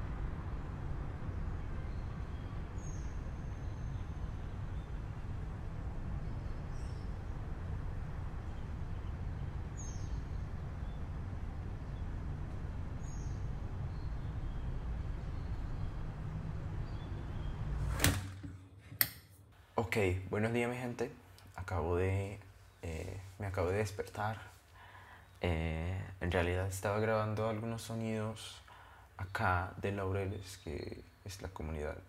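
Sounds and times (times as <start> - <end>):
distant traffic rumble: 0.0 - 18.8
bird chirping: 1.8 - 5.3, 8.5 - 11.1, 13.0 - 18.0.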